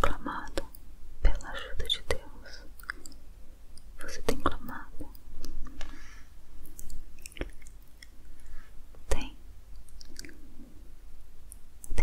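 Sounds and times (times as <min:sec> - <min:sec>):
wet mouth clicks: 0:02.8 - 0:03.2, 0:06.6 - 0:08.5, 0:09.7 - 0:10.5.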